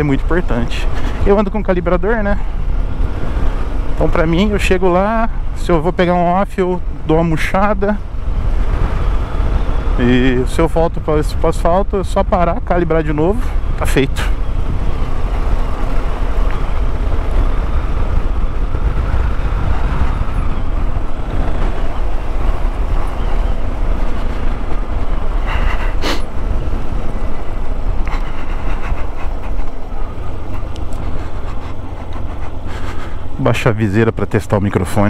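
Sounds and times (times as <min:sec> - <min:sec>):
wind and road rumble: 0:00.0 - 0:35.0
motorcycle engine running: 0:13.1 - 0:33.4.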